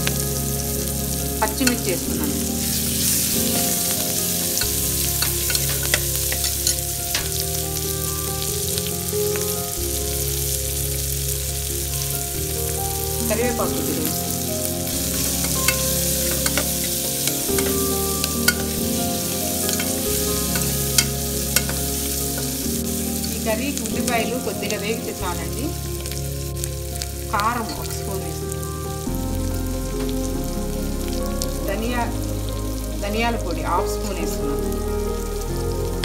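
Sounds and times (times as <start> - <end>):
onions sizzling in oil: 0.0 - 35.5
steel ladle clinking and scraping: 3.2 - 7.4, 15.0 - 22.7.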